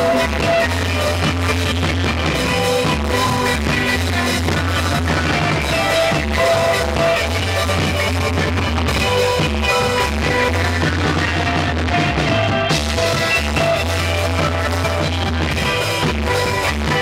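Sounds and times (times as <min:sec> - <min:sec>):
bass line: 0:00.0 - 0:17.0
drums: 0:00.0 - 0:17.0
electric guitar: 0:00.0 - 0:17.0.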